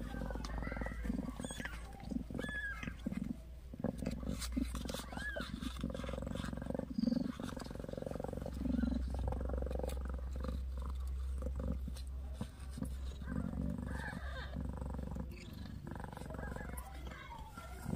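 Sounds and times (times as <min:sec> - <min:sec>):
cat purring: 0:00.0 - 0:17.9.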